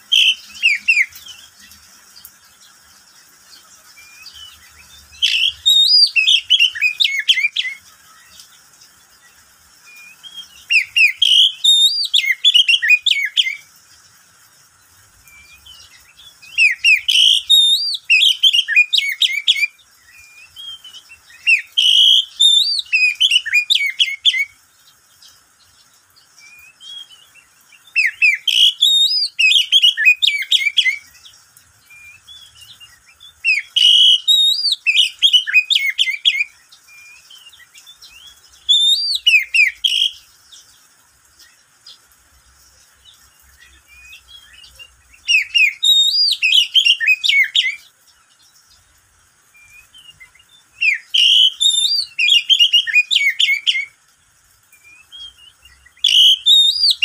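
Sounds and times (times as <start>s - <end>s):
bird singing whistled phrases: 0.0s - 1.6s, 4.0s - 8.4s, 9.8s - 13.7s, 15.3s - 24.6s, 26.4s - 40.3s, 43.6s - 47.8s, 49.5s - 54.0s, 54.8s - 57.0s.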